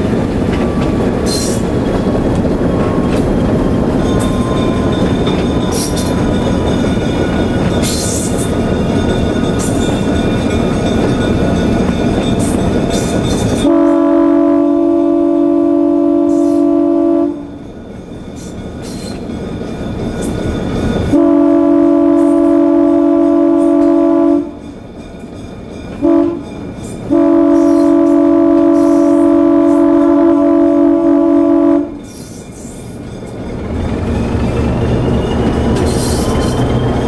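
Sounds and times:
locomotive engine rumble: 0.0 - 37.0
locomotive air horn blasts: 13.6 - 17.5, 21.1 - 24.6, 26.0 - 26.5, 27.1 - 32.0.

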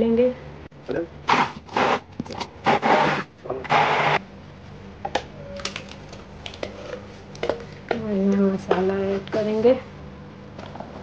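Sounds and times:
hand blender grinding: 2.6 - 4.2.

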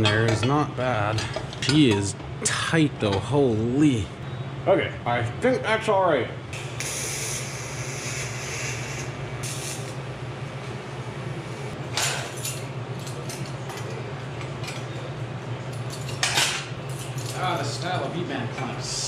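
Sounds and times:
steady low hum: 0.0 - 19.0
welding arc hissing: 6.6 - 10.1.

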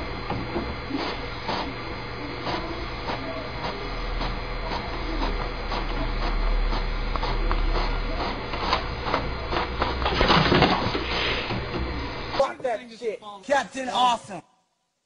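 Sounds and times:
paper feeding out: 0.0 - 12.3
inkjet printer printing: 0.0 - 12.4
print head clicks: 0.0 - 12.4.

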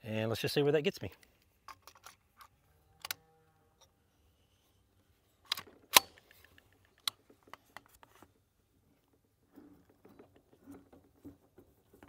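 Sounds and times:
rifle metallic click: 5.5 - 7.2.

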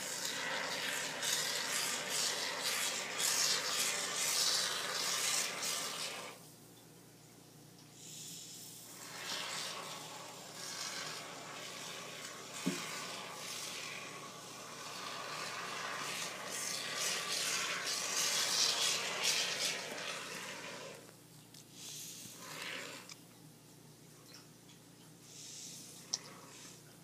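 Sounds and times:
aerosol foam hissing: 0.0 - 6.4, 8.0 - 21.1, 21.7 - 23.2, 25.3 - 26.8.

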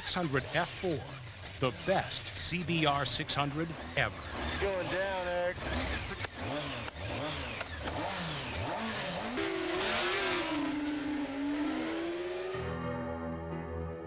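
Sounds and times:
motorcycles accelerating hard: 0.0 - 12.8
synthesizer music: 9.8 - 14.0.

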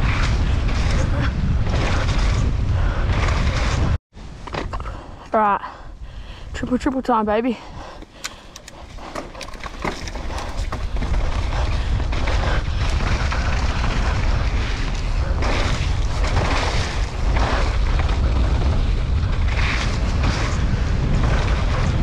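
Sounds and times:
bike tyre and trail noise: 0.0 - 22.0
wind buffeting microphone: 0.0 - 22.0
sharp clicks: 8.0 - 10.7.

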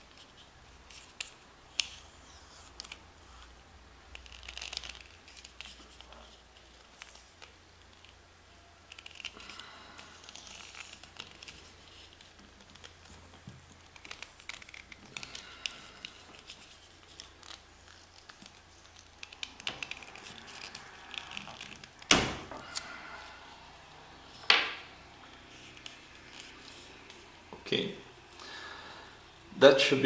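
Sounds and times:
crackles clicks and rustling: 0.0 - 23.0.

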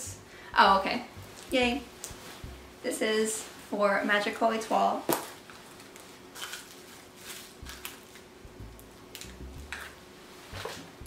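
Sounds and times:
soft low bumps: 0.0 - 2.9, 7.6 - 11.0
plastic packaging rustling: 5.1 - 8.3.

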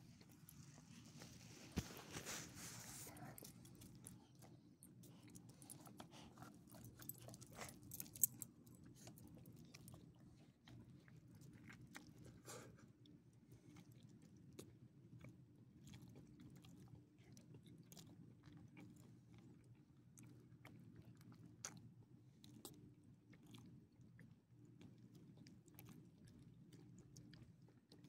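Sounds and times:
dog chewing a treat: 0.0 - 12.6.

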